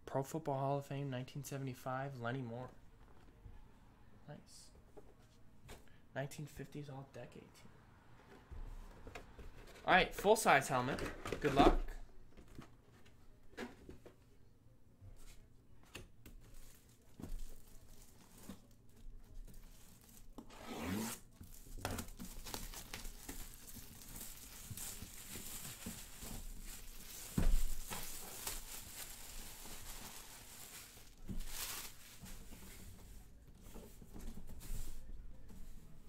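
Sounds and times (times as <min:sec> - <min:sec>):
plastic wrapping crinkling: 0:16.4 - 0:20.5, 0:21.2 - 0:32.9.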